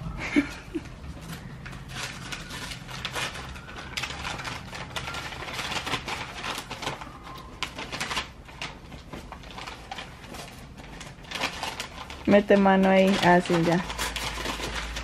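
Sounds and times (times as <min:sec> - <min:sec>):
wrapping paper crinkling and tearing: 0:00.0 - 0:15.0.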